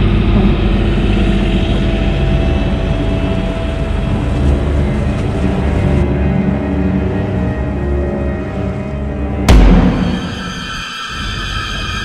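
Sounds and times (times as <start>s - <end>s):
boat diesel engine running: 0.0s - 9.7s.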